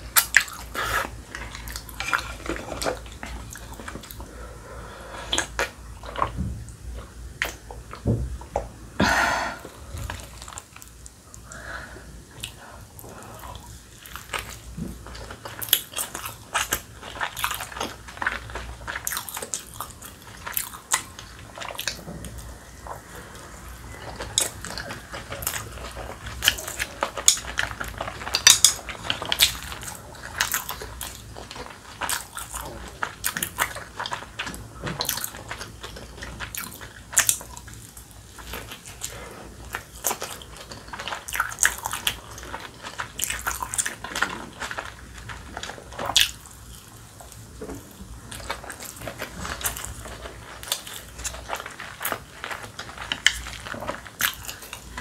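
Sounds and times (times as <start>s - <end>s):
close-miked chewing and mouth smacks: 12.3s - 55.0s.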